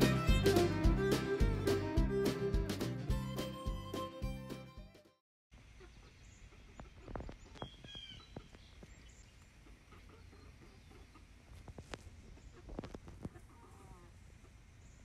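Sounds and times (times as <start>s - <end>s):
fiddle music: 0.0s - 5.1s
hen chirping call: 5.7s - 11.3s
hens foraging clicks: 6.5s - 13.9s.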